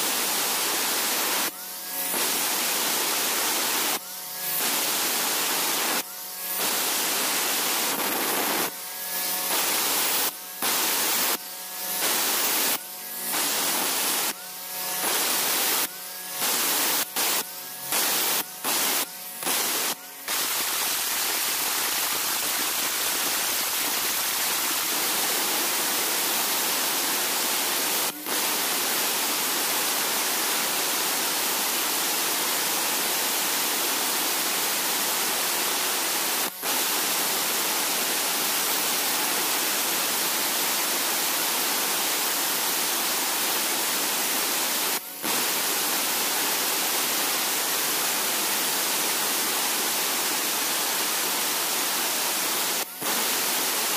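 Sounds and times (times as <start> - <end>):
angle grinder cutting stone: 0.2 - 42.8.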